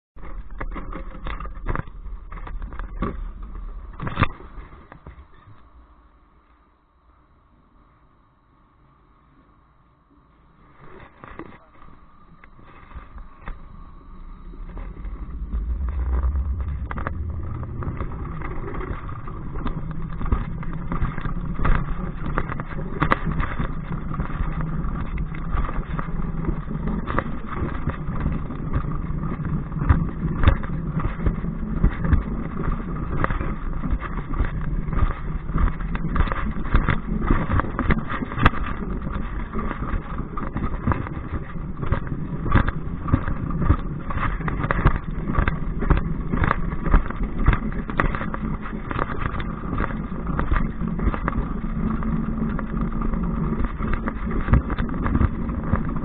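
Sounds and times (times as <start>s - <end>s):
coaster sled wheels rumbling on rail: 0.2s - 6.6s, 10.6s - 56.0s.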